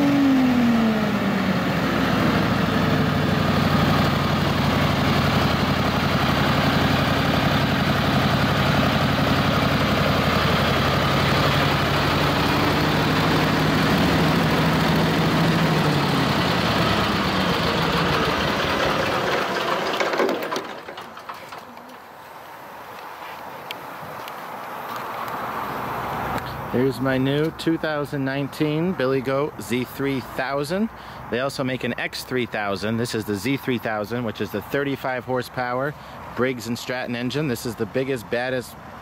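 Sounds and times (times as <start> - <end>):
blower engine and fan running: 0.0 - 23.0.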